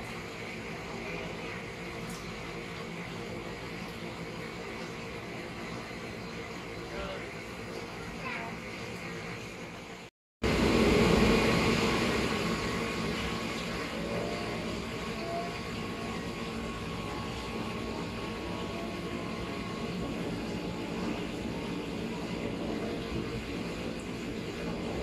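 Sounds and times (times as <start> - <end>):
faint rising whine: 10.4 - 25.0.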